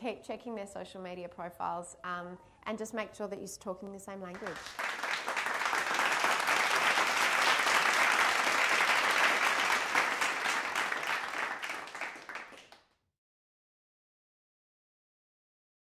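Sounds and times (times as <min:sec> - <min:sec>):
audience applauding: 0:04.4 - 0:12.8.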